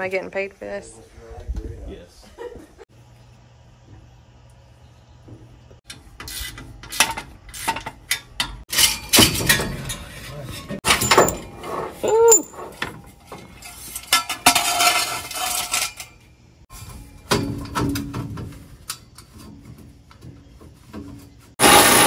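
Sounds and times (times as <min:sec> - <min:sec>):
metal scraping: 0:05.8 - 0:22.0
metal tools clinking and clattering: 0:06.9 - 0:16.3.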